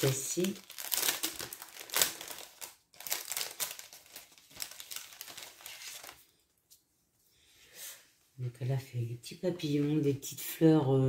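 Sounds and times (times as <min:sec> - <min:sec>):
paper rustling and crinkling: 0:00.0 - 0:06.8.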